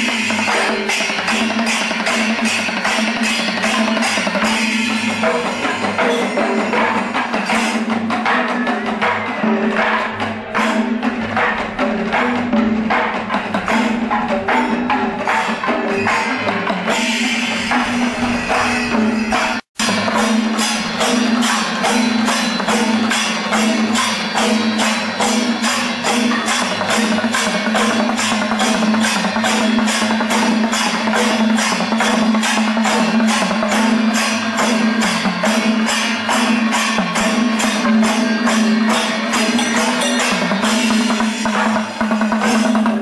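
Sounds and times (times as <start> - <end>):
percussion music with drums: 0.0 - 43.0.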